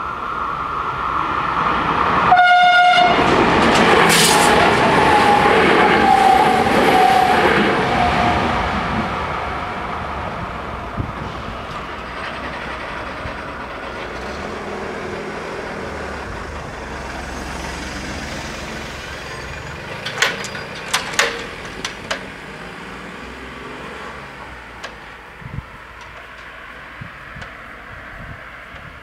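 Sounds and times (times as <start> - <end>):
car driving: 0.0 - 29.0
steady outdoor rumble: 7.6 - 29.0
tyres knocking over rails: 16.4 - 22.8.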